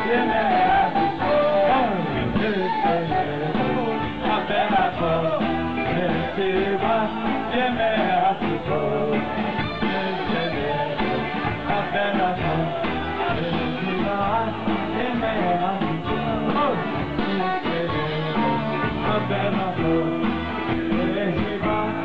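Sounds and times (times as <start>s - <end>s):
men singing religious song: 0.0s - 16.8s.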